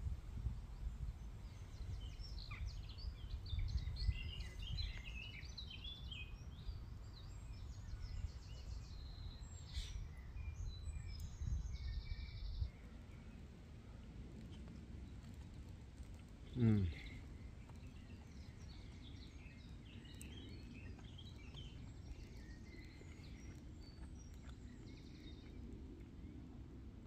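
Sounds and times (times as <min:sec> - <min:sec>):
small birds chirping and whistling: 0:01.4 - 0:13.4, 0:16.5 - 0:25.6.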